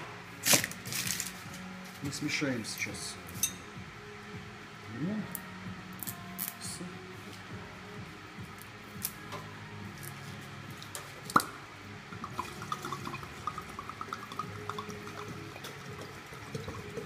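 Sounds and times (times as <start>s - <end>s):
liquid glugging from bottle: 12.2s - 17.0s.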